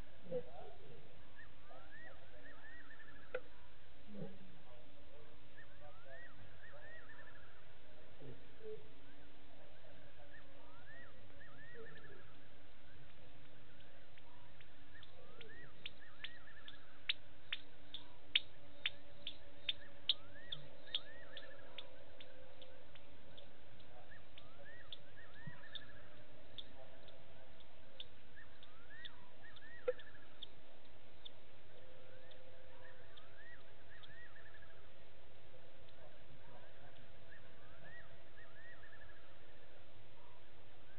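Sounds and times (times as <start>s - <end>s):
animal chirps: 14.5s - 30.5s.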